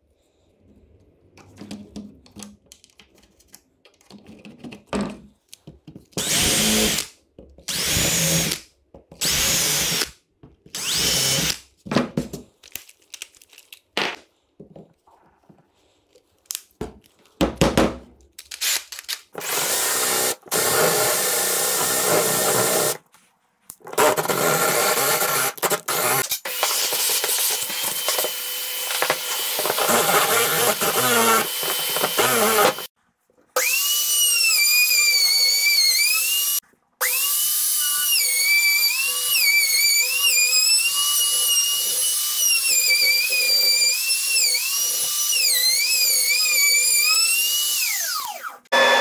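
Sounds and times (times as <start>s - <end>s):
cordless drill boring wood: 6.2s - 7.1s, 7.7s - 8.6s, 9.2s - 10.1s, 10.7s - 11.6s, 19.4s - 23.0s, 23.9s - 32.9s, 33.6s - 49.0s.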